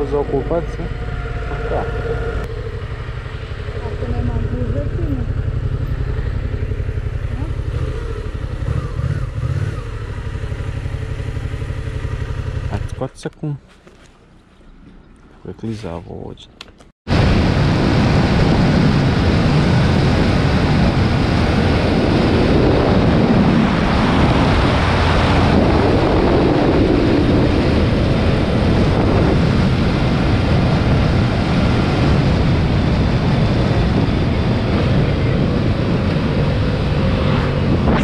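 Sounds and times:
motorcycle engine and tyre noise: 0.0s - 15.5s, 16.6s - 38.0s
wind rush on microphone: 17.1s - 38.0s.

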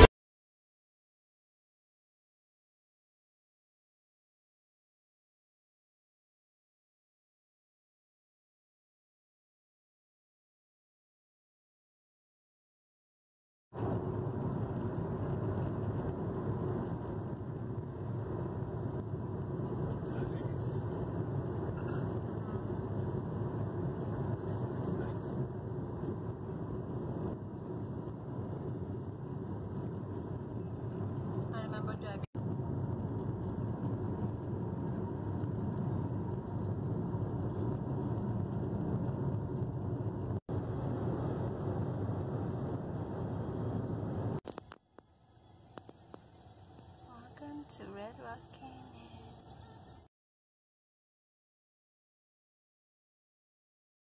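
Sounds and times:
car road noise: 13.8s - 50.1s.

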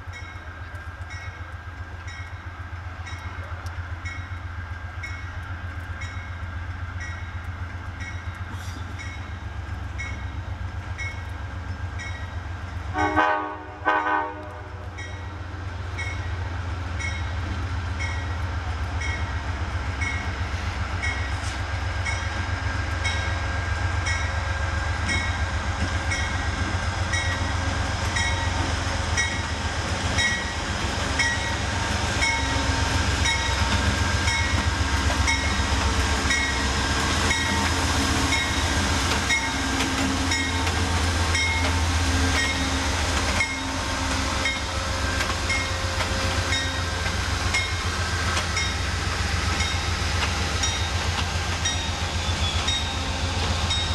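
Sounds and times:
locomotive engine and wheels passing: 0.0s - 53.9s
train air horn blasts: 12.9s - 15.0s.

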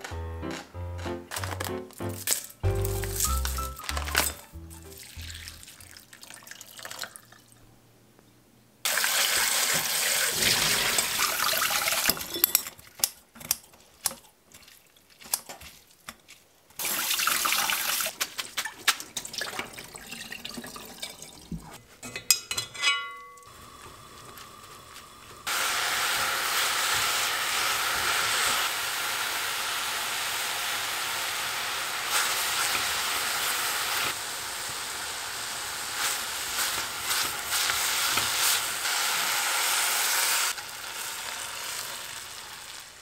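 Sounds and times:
kitchen scissors snipping: 12.4s - 14.3s.

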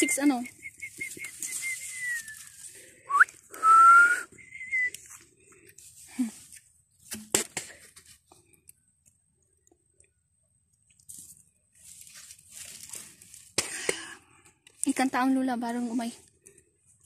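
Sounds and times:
woman whistling chick peeps: 0.0s - 2.5s, 3.1s - 5.0s.

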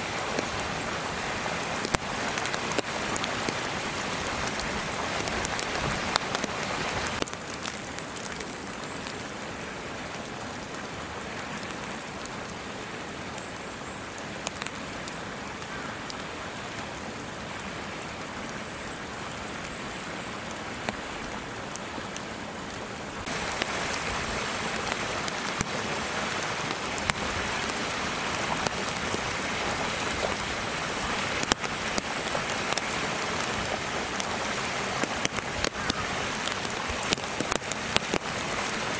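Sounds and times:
wet snow pattering: 23.2s - 38.9s.

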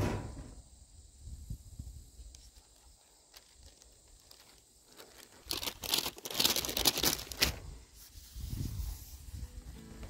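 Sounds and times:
backing paper peeling and crinkling: 2.3s - 8.4s.

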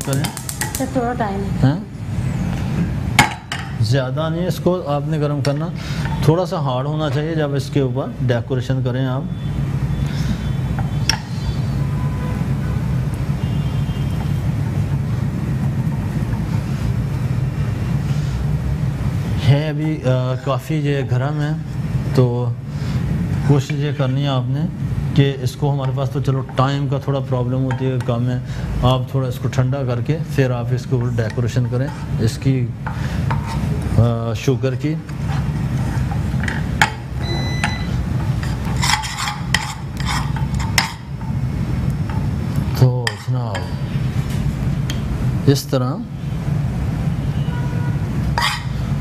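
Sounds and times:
utensils knocking cookware: 0.0s - 1.0s, 36.0s - 41.4s
steady low hum: 0.0s - 49.0s.

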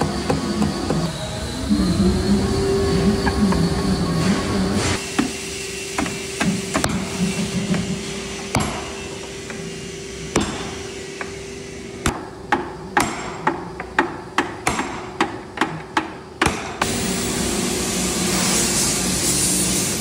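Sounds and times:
hammer striking metal barrel hoops: 4.8s - 17.0s.

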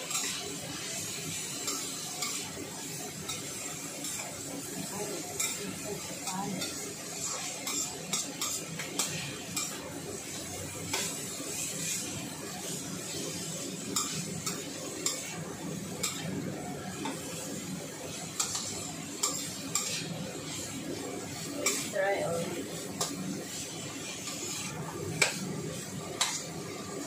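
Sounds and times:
frying sizzle: 0.0s - 27.0s
metal ladle scraping a wok: 6.6s - 9.8s, 23.0s - 25.4s.

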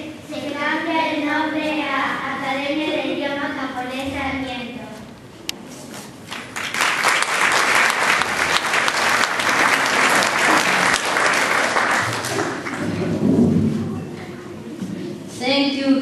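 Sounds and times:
audience applauding: 6.3s - 13.2s.

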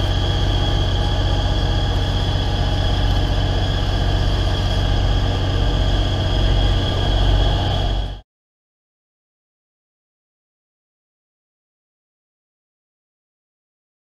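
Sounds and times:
car engine drone: 0.0s - 8.2s
road noise: 0.0s - 8.2s.

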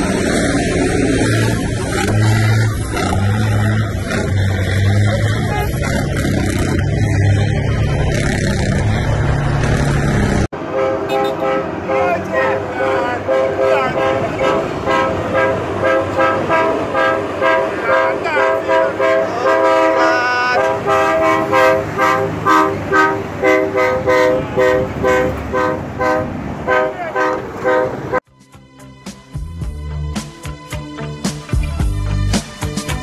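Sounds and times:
truck air horns honking: 1.0s - 6.4s, 10.5s - 28.2s
music: 28.2s - 33.0s.

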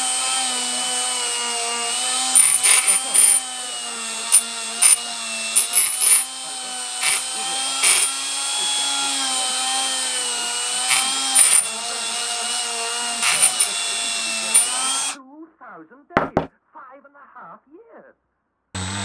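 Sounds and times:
rotary tool high whine: 0.0s - 15.2s, 18.8s - 19.0s.

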